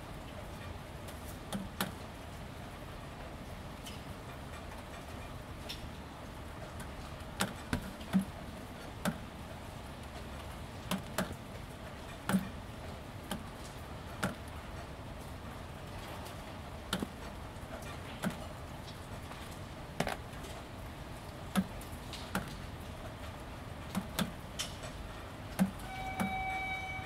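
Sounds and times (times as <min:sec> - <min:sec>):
rain on corrugated roof: 0:00.0 - 0:27.0
raindrops tapping: 0:00.1 - 0:02.6, 0:03.2 - 0:26.8.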